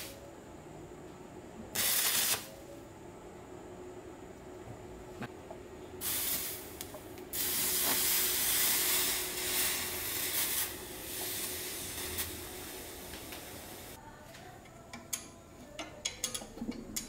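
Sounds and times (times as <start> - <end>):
water sizzling on hot metal: 7.3 - 14.0.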